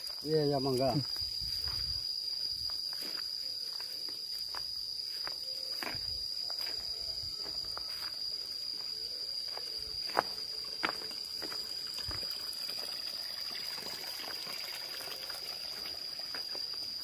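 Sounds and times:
footsteps on dirt footpath: 0.0 - 12.3
insects droning: 0.0 - 17.0.

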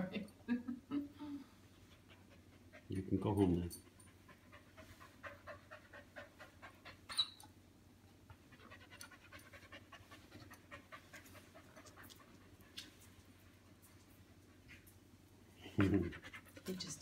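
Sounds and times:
dog panting: 1.8 - 7.1, 8.3 - 13.1, 15.8 - 17.0.

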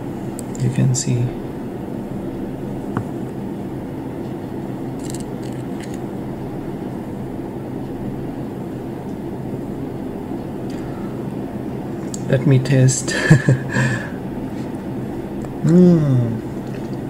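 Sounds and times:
low background hum and rumble: 0.0 - 17.0.

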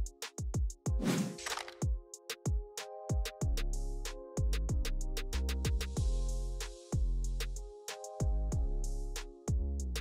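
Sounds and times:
electronic music: 0.0 - 10.0
deep kick drums: 4.4 - 4.9, 5.7 - 6.2, 7.0 - 7.2, 8.2 - 8.8, 9.5 - 9.8.

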